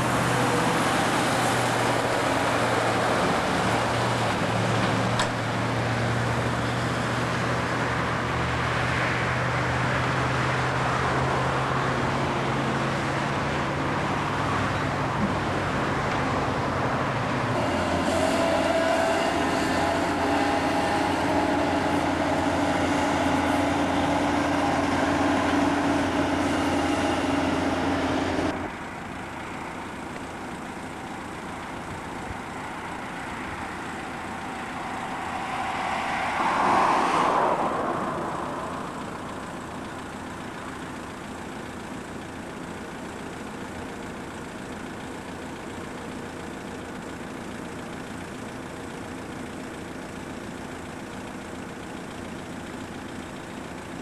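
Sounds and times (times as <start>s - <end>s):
distant traffic hum: 0.0s - 54.0s
heavy construction machinery running: 0.0s - 54.0s
vehicle passing: 32.6s - 40.0s.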